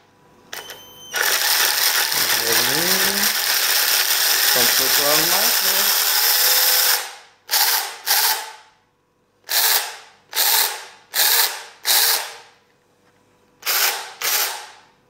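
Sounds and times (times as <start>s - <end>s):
mini chainsaw spinning up: 1.2s - 8.5s.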